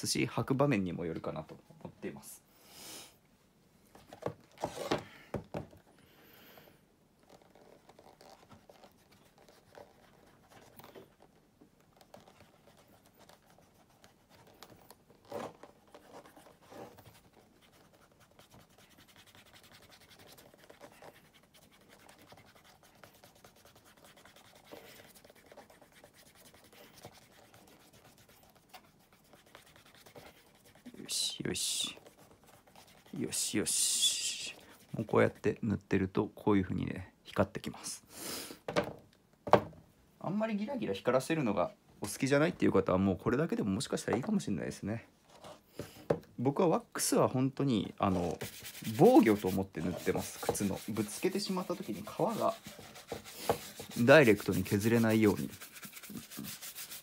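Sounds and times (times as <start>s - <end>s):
fingers rubbing cream into leather: 48.0s - 57.0s.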